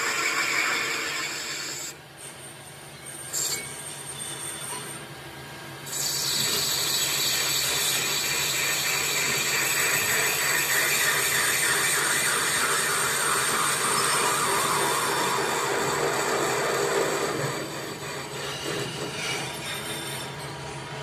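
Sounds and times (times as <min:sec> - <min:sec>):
lathe cutting metal: 0:00.0 - 0:02.0, 0:05.9 - 0:20.6
lathe spinning: 0:00.0 - 0:02.0, 0:05.9 - 0:21.0.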